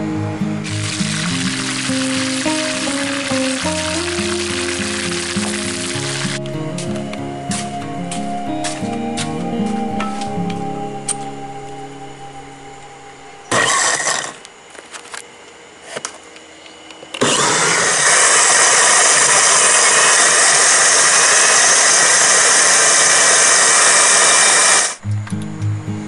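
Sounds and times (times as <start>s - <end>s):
small electric motor running: 0.6s - 6.4s, 13.5s - 14.5s, 17.2s - 25.0s.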